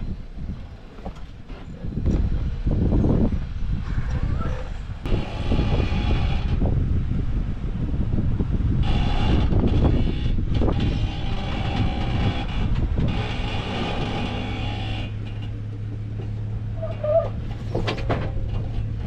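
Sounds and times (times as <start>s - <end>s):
engine and drivetrain rumble: 0.0s - 19.0s
knocks and clatter: 8.8s - 19.0s.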